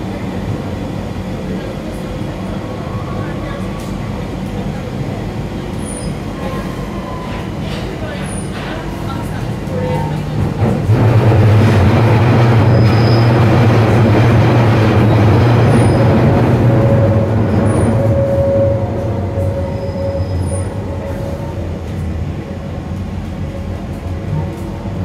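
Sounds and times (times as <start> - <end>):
train wheels rumbling: 0.0 - 25.0
steady whine: 11.2 - 25.0
high wheel squeals: 12.6 - 13.6, 15.7 - 21.6.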